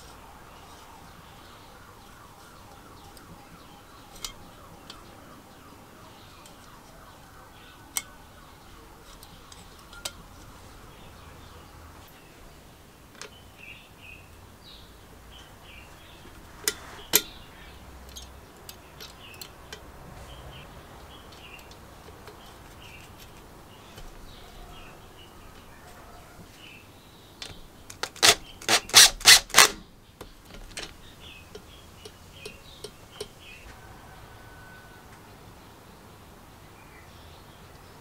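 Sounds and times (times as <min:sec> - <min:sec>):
birds chirping: 0:00.0 - 0:38.0
metallic clicks of hand tool: 0:18.1 - 0:19.9.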